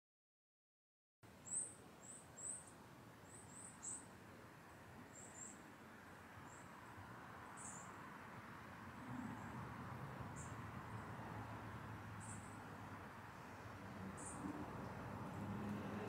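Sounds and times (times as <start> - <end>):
soft outdoor hush: 1.2 - 16.0
small birds chirping: 1.4 - 5.7, 6.4 - 8.0, 10.3 - 11.2, 12.1 - 16.0.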